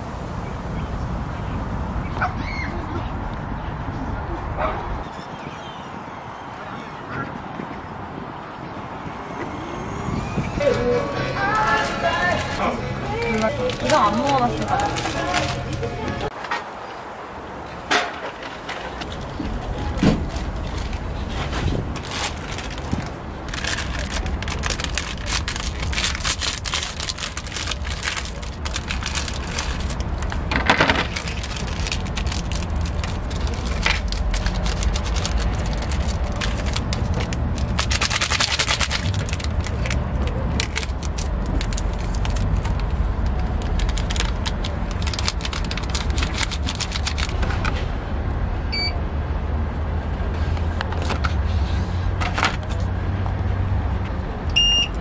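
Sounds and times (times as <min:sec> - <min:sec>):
plastic packaging crinkling: 0:13.2 - 0:15.8, 0:21.9 - 0:47.4
seasoning packets torn and shaken: 0:13.2 - 0:15.8, 0:21.9 - 0:47.4
short electronic beep: 0:48.7 - 0:49.0, 0:54.6 - 0:55.0.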